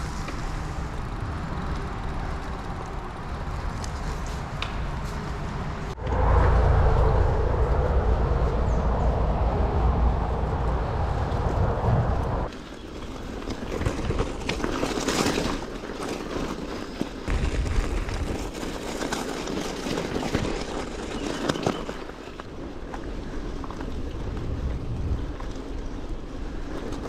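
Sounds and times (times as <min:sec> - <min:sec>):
bike rattles and clicks: 0:00.0 - 0:06.1, 0:07.8 - 0:27.0
bicycle tyres on path: 0:00.0 - 0:27.0
wind buffeting microphone: 0:04.5 - 0:12.5, 0:20.3 - 0:27.0.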